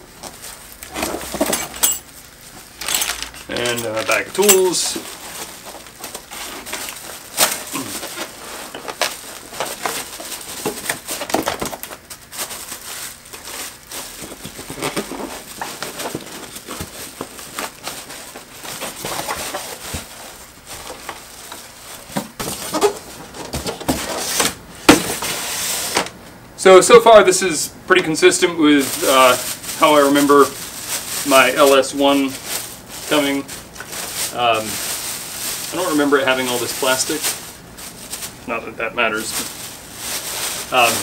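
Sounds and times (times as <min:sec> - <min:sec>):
plastic wrapping crinkling: 0:00.0 - 0:26.1, 0:28.0 - 0:41.0
knocks and rustles: 0:00.2 - 0:26.1
styrofoam squeaking and rubbing: 0:03.4 - 0:24.5, 0:28.8 - 0:38.3, 0:39.1 - 0:41.0.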